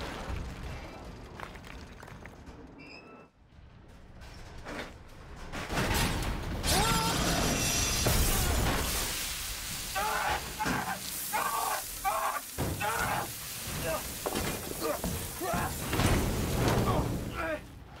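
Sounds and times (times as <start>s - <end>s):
men grunting: 10.0s - 14.1s.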